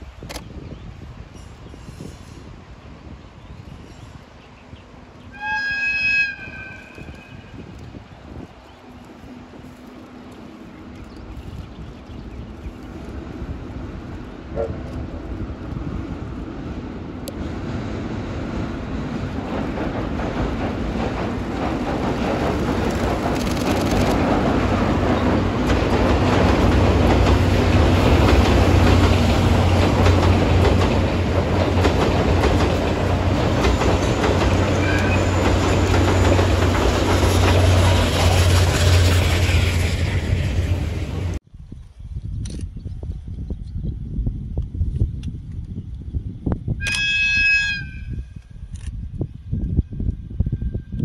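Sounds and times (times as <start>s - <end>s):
train rumbling over steel bridge: 0.0s - 41.5s
clickety-clack of rail joints: 6.8s - 41.4s.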